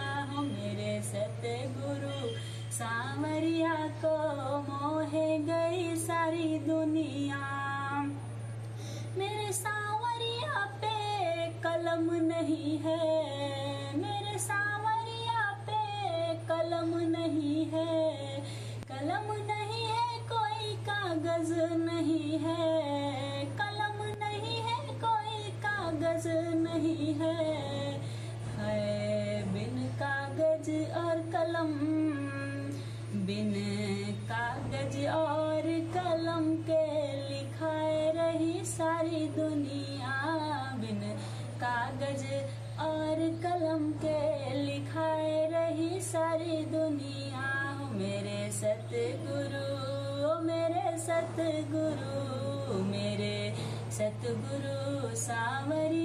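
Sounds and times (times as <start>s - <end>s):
steady low hum: 0.0s - 56.0s
woman singing devotional song: 0.0s - 56.0s.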